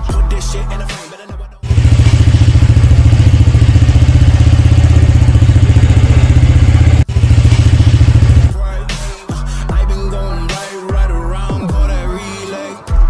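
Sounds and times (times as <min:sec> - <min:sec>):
music: 0:00.0 - 0:04.4, 0:07.0 - 0:13.0
scooter engine idling: 0:01.6 - 0:08.5.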